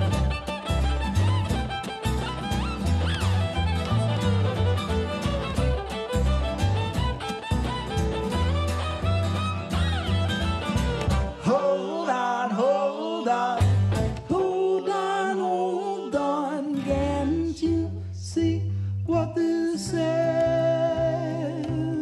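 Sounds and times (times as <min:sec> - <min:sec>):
plucked double bass: 0:00.0 - 0:11.6, 0:13.6 - 0:14.5, 0:16.8 - 0:22.0
bowed fiddle: 0:00.0 - 0:12.1
strummed acoustic guitar: 0:00.0 - 0:12.8, 0:13.4 - 0:15.3.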